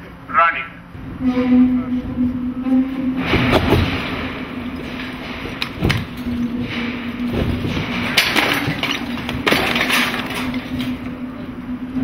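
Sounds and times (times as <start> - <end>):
steady hum: 0.0 - 12.0
house rattling: 3.2 - 11.1
sharp cracks and bangs: 3.2 - 11.1.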